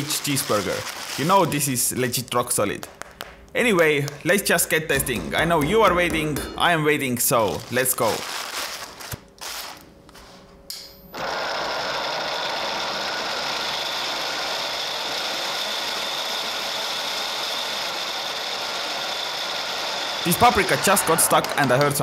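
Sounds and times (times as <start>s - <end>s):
plastic shredder motor whirring: 11.2s - 21.5s.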